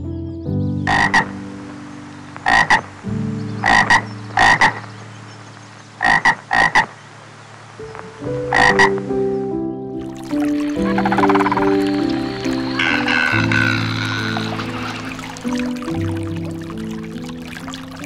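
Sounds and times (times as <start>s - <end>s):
frog croaking: 0.9s - 1.4s, 2.4s - 3.0s, 3.6s - 4.9s, 6.0s - 7.0s, 8.5s - 9.0s, 10.0s - 18.0s.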